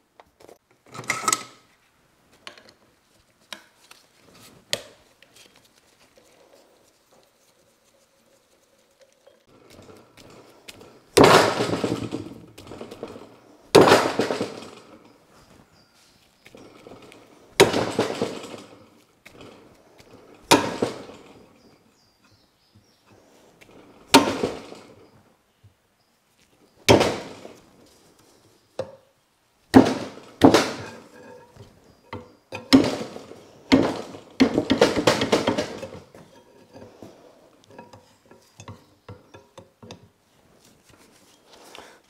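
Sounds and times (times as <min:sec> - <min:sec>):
metal tools clanking: 0:30.0 - 0:40.1.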